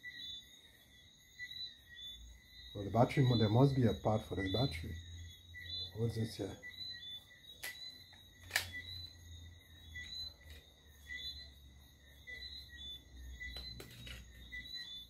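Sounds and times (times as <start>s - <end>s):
crickets chirping: 0.0s - 15.0s
plastic clicks of radio transmitter: 7.6s - 8.9s.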